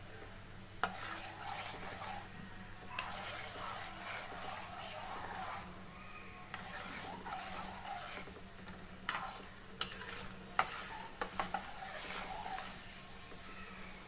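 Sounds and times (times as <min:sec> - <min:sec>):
metal spoon stirring: 0:00.8 - 0:05.8, 0:06.4 - 0:13.2
hot oil sizzling: 0:03.0 - 0:05.7, 0:09.0 - 0:13.6.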